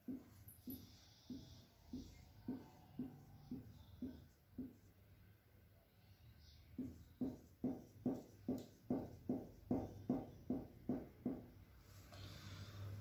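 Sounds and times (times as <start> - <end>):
marker knocking on whiteboard: 0.0 - 4.9, 6.7 - 11.6.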